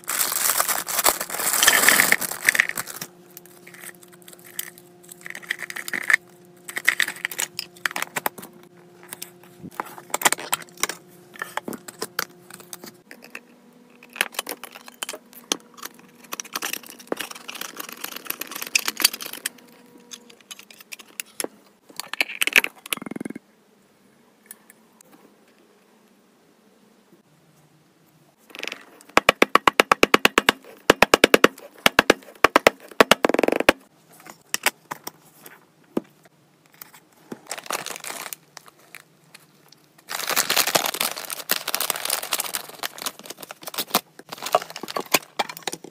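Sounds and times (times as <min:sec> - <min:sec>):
plastic wrappers crinkling: 0:00.0 - 0:08.5, 0:15.4 - 0:20.1, 0:37.3 - 0:45.9.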